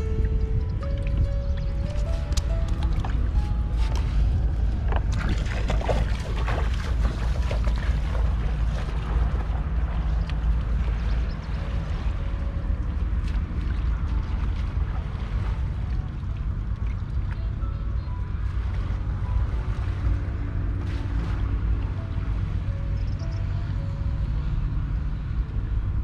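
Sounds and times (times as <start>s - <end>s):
water splashing and sloshing: 0.0s - 26.0s
wind buffeting microphone: 0.0s - 26.0s.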